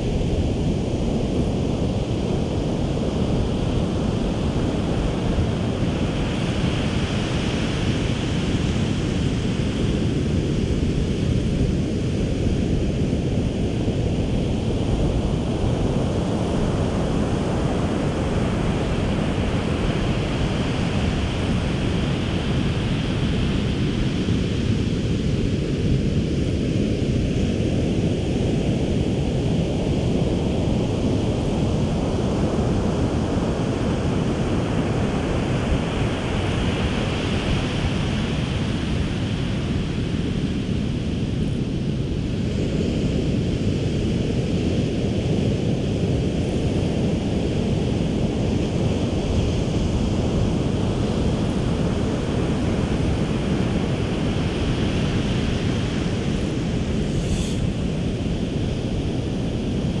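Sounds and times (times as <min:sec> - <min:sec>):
wind buffeting microphone: 0:00.0 - 1:00.0
surf washing onto beach: 0:52.5 - 0:58.4.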